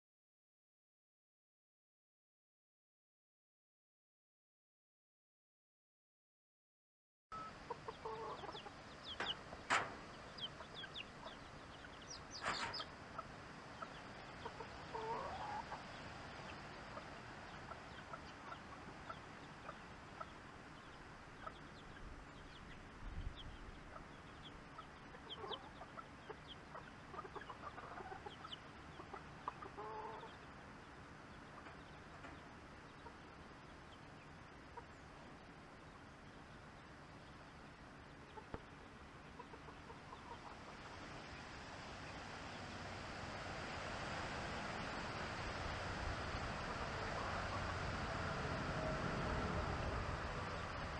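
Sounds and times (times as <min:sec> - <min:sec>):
steady outdoor hiss: 0:07.4 - 0:50.9
hens clucking: 0:07.5 - 0:30.5, 0:38.2 - 0:41.2.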